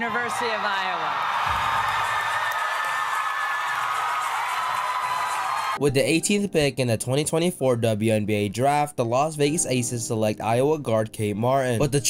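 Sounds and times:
crowd cheering and applauding: 0:00.0 - 0:05.8.

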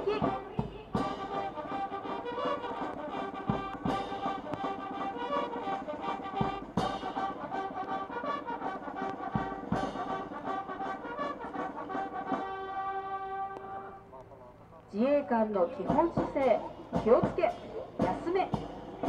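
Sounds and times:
bugles playing in unison: 0:00.0 - 0:14.2
drum beats: 0:00.0 - 0:19.0.

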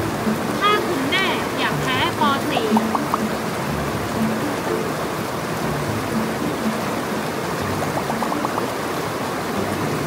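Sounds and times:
waterfall rushing water: 0:00.0 - 0:10.0.

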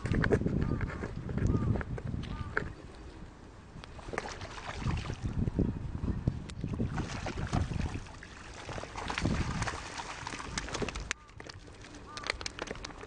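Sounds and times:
low buffeting rumble: 0:00.0 - 0:12.2
fish splashing in shallow water: 0:03.8 - 0:05.4, 0:06.6 - 0:13.0
scattered clicks: 0:10.5 - 0:13.0.

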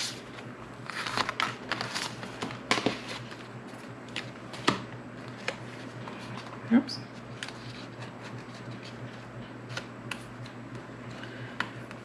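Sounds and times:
paper rustling: 0:00.0 - 0:06.5.

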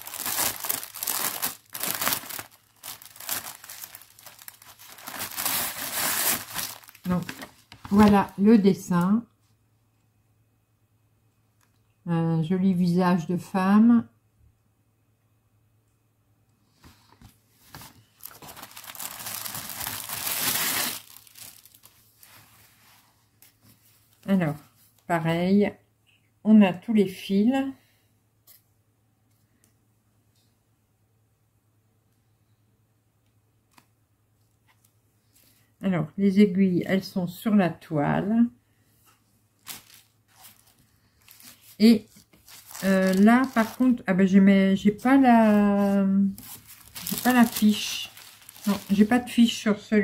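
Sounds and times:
plastic packaging crinkling: 0:00.0 - 0:08.4, 0:17.7 - 0:22.4, 0:39.6 - 0:49.6.

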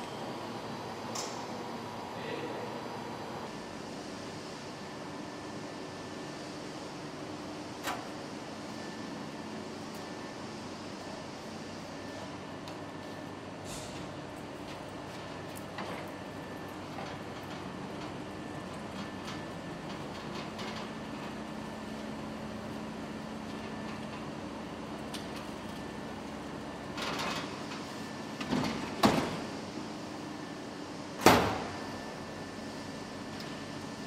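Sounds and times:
printers humming: 0:00.0 - 0:34.0.

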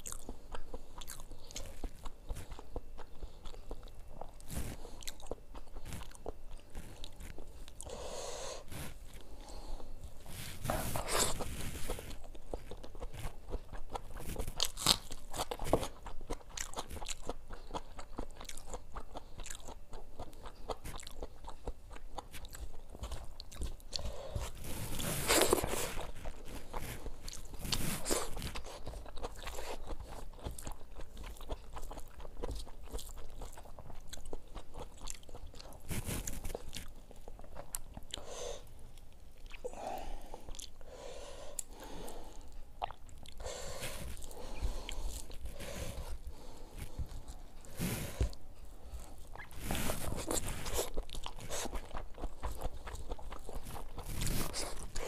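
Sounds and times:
chewing and crunching fried food: 0:00.0 - 0:55.0.

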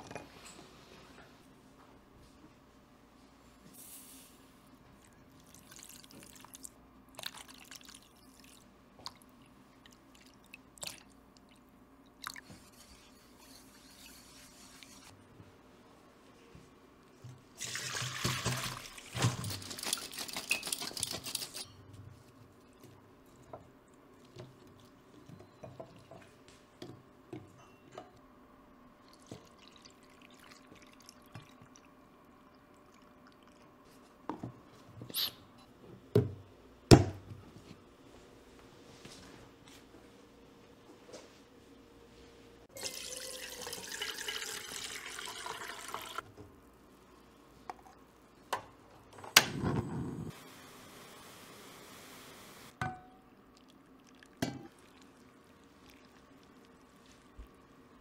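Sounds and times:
soft pouring: 0:05.0 - 0:15.1, 0:29.0 - 0:34.1, 0:42.7 - 0:46.2, 0:53.4 - 0:57.9
water splashing into sieve: 0:17.6 - 0:19.7.

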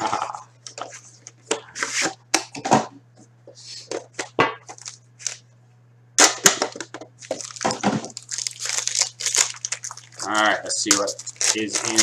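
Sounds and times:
foil wrapper crinkling and tearing: 0:04.7 - 0:05.4, 0:07.2 - 0:12.0.

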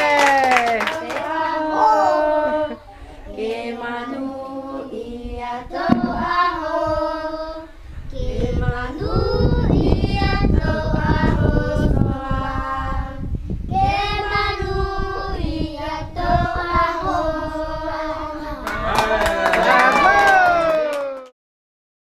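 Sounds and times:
children and women singing: 0:00.0 - 0:18.9.

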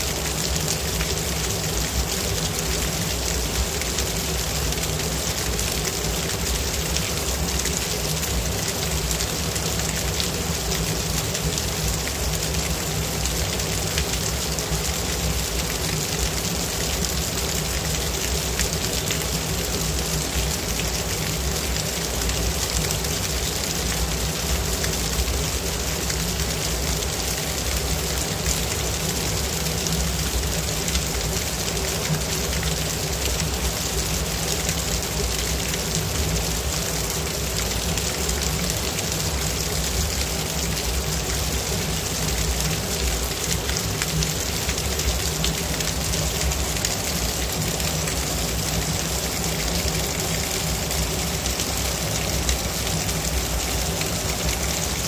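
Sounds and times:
small waterfall splashing on rocks: 0:00.0 - 0:55.0.

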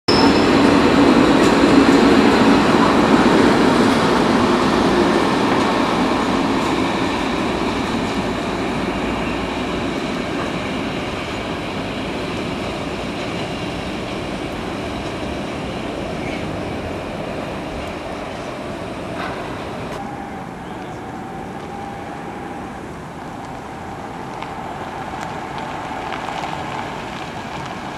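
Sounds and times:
freight train rolling past: 0:00.1 - 0:27.9.

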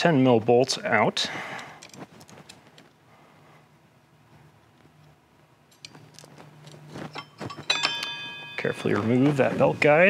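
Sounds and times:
sharp metallic clink: 0:07.1 - 0:09.4.

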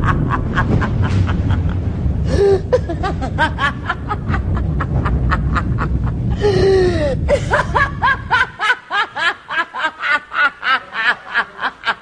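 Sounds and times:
low background rumble: 0:00.0 - 0:12.0
woman cackling laugh: 0:00.0 - 0:12.0.

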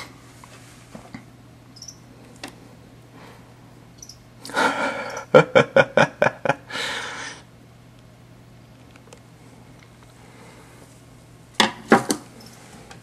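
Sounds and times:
person laughing breathily: 0:04.5 - 0:07.4.

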